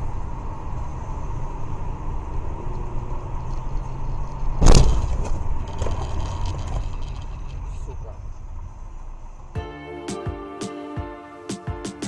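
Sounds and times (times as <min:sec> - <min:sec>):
car road and engine rumble: 0:00.0 - 0:09.5.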